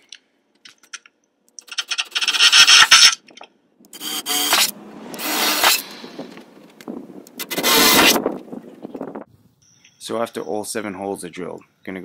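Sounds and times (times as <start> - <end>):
cordless drill boring through metal: 4.0 - 5.9, 7.4 - 8.2.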